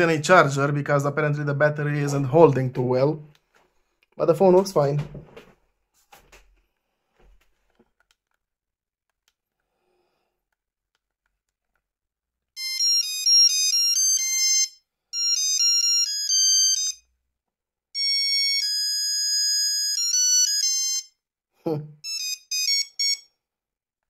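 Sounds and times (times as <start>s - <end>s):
mobile phone beeping ringtone: 12.6s - 17.1s, 18.0s - 21.2s, 22.0s - 23.4s.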